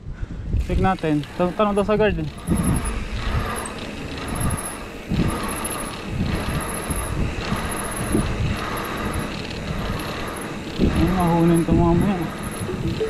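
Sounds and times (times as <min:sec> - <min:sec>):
wind buffeting microphone: 0:00.0 - 0:13.0
rushing road noise: 0:00.4 - 0:13.0.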